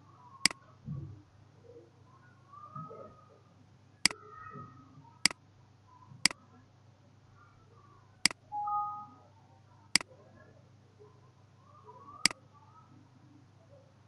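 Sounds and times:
two-note tone: 0:08.6 - 0:09.2.

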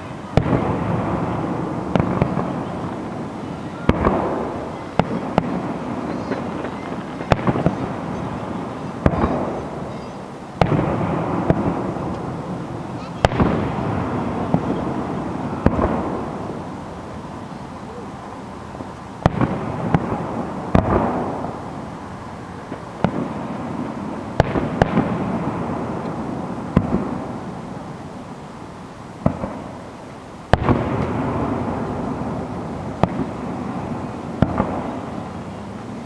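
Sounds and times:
firework bangs with rolling echo: 0:00.0 - 0:18.0, 0:18.7 - 0:28.5, 0:29.2 - 0:36.0.

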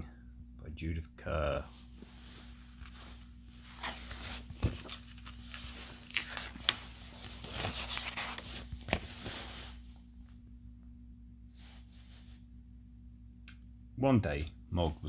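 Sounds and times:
book pages turning: 0:02.8 - 0:09.8.

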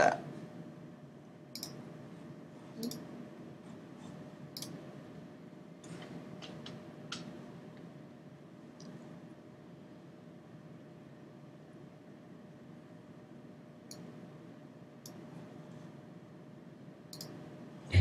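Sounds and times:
computer mouse clicks: 0:01.6 - 0:01.8, 0:02.8 - 0:03.1, 0:04.6 - 0:04.8, 0:13.9 - 0:14.1, 0:17.1 - 0:17.4.

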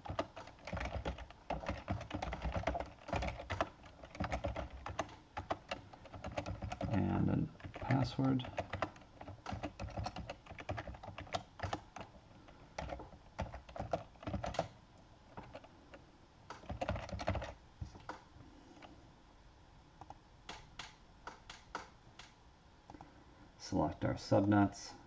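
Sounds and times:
typing on a computer keyboard: 0:00.0 - 0:15.7, 0:16.5 - 0:18.2, 0:20.0 - 0:23.0.

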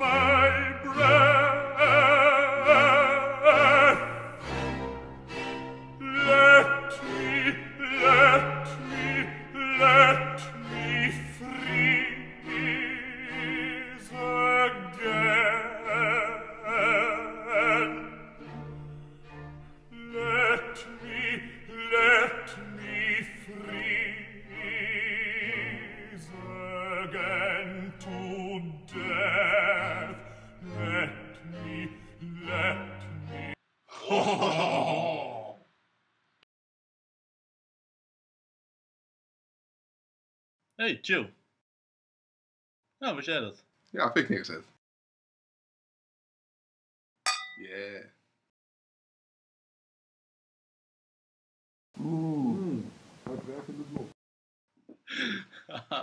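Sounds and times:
operatic singing with vibrato: 0:00.0 - 0:33.6
sustained orchestral strings: 0:00.0 - 0:33.6.

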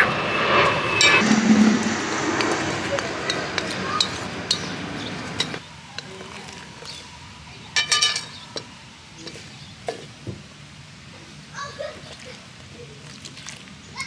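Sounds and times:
steady rushing background: 0:00.0 - 0:05.6
metal spoon clinking in bowl: 0:07.8 - 0:09.5.

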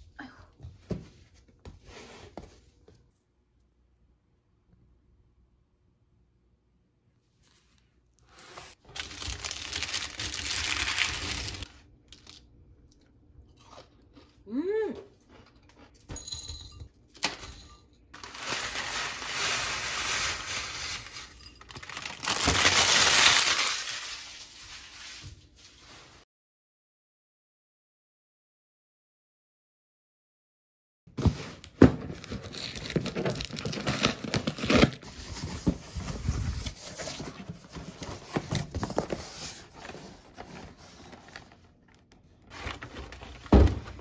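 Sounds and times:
granola crunching and crackling: 0:08.8 - 0:12.5, 0:21.7 - 0:24.2.

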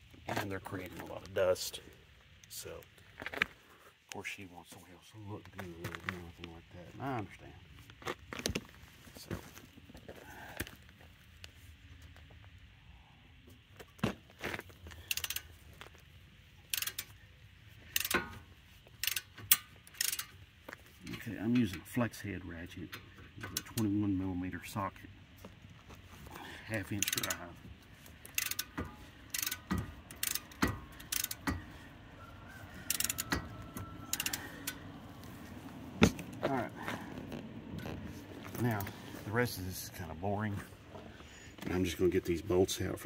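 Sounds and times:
ratchet clicking: 0:15.0 - 0:15.6, 0:16.6 - 0:17.2, 0:17.9 - 0:20.5, 0:22.9 - 0:23.9, 0:26.8 - 0:27.5, 0:28.1 - 0:31.7, 0:32.8 - 0:34.9.

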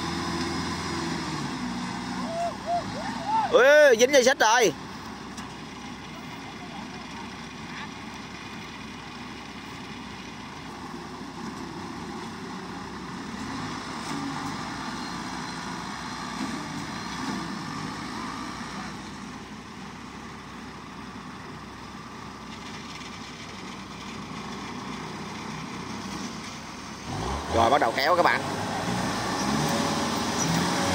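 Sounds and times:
harvester and tractor engines running: 0:00.0 - 0:30.9.

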